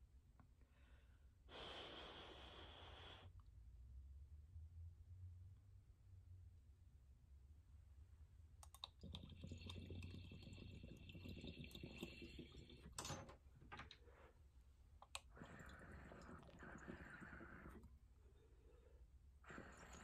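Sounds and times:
person exhaling: 0:00.8 - 0:03.3, 0:18.6 - 0:20.0
water bubbling: 0:08.9 - 0:13.0, 0:15.2 - 0:17.9.

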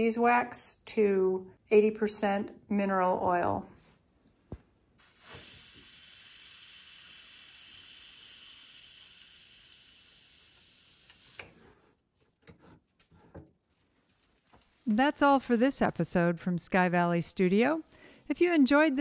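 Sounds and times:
hot branding iron hissing: 0:05.0 - 0:11.8.

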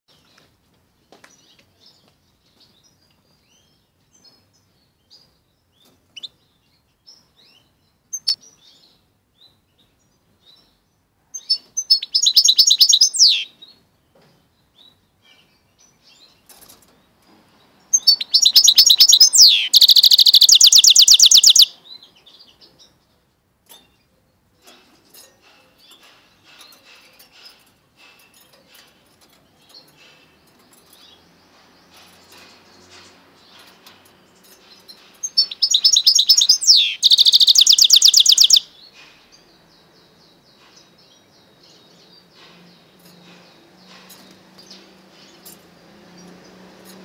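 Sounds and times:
soft bird chirps: 0:01.2 - 0:23.1, 0:23.7 - 0:47.0
bird singing and trilling: 0:03.5 - 0:16.6, 0:17.9 - 0:23.1, 0:25.1 - 0:47.0.

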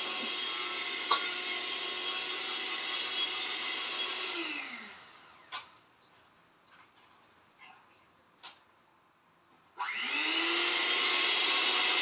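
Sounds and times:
motor winding down whine: 0:00.0 - 0:05.5, 0:09.8 - 0:12.0
electric mixer running: 0:00.0 - 0:05.6, 0:09.8 - 0:12.0.

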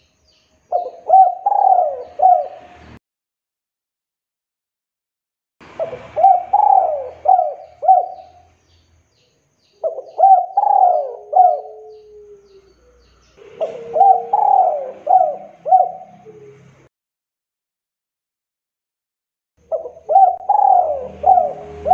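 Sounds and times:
dove cooing: 0:00.7 - 0:02.7, 0:05.8 - 0:08.5, 0:09.8 - 0:16.8, 0:19.6 - 0:21.9.

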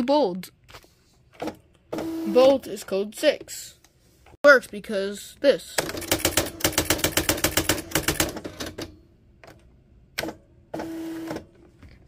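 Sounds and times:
typewriter mechanical strikes: 0:05.8 - 0:08.9.

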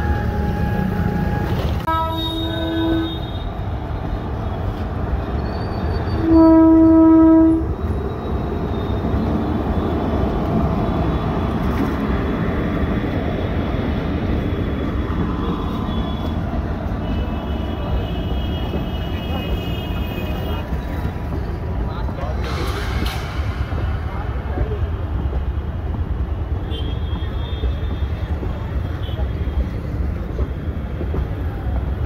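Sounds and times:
locomotive horn blast: 0:00.0 - 0:03.6, 0:06.2 - 0:07.7
train rumbling: 0:00.0 - 0:32.0.

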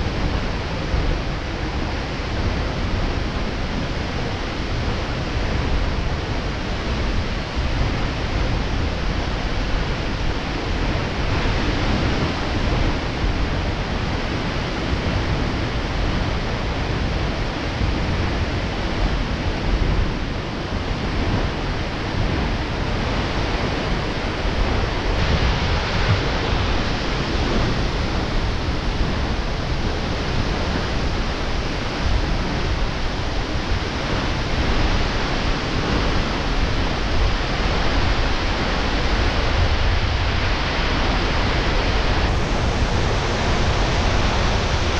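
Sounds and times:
waterfall rushing: 0:22.6 - 0:44.9.

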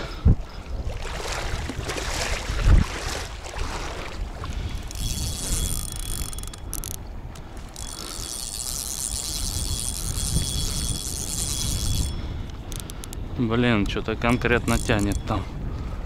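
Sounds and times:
wind rumble on microphone: 0:00.0 - 0:16.0
fishing reel gears whirring: 0:04.7 - 0:13.3, 0:14.3 - 0:15.4.

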